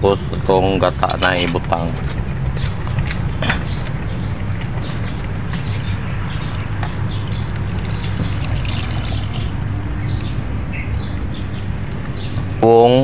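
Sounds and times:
liquid pouring through strainer: 7.2s - 9.7s.

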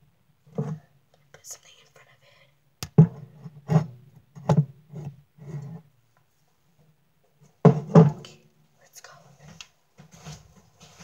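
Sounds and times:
handling thuds and rustles: 9.9s - 11.0s.

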